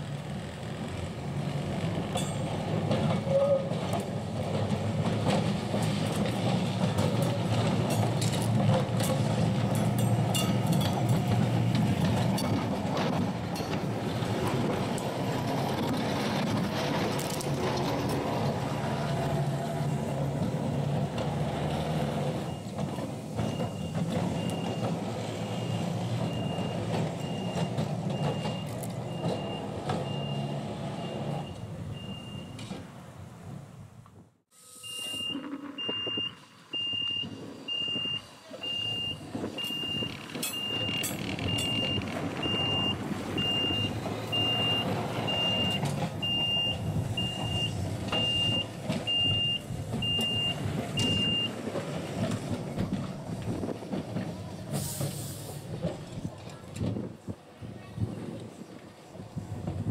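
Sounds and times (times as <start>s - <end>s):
electric tram passing on rails: 0.0s - 59.9s
level crossing warning beeps: 23.4s - 32.6s, 34.6s - 51.6s.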